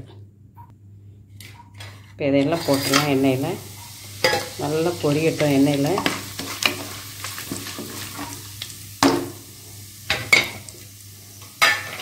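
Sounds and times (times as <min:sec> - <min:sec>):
spices sizzling in hot oil: 0:02.5 - 0:12.0.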